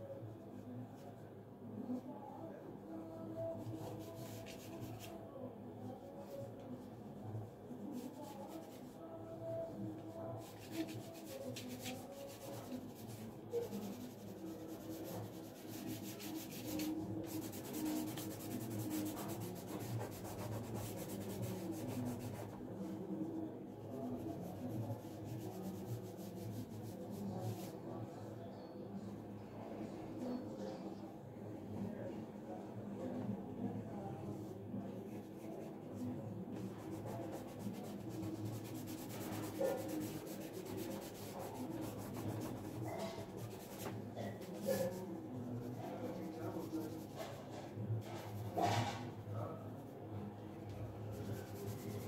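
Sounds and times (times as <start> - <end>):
pencil scratching on paper: 10.4 - 22.6, 36.6 - 49.0.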